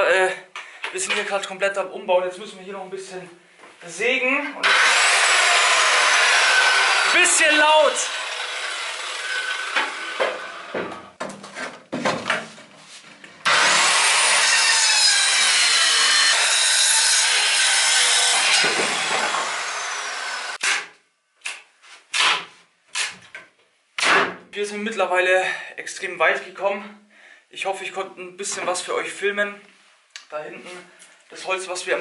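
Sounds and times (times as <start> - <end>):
electric saw cutting wood: 4.6 - 10.9, 13.4 - 20.9
wood knocking: 9.7 - 12.6.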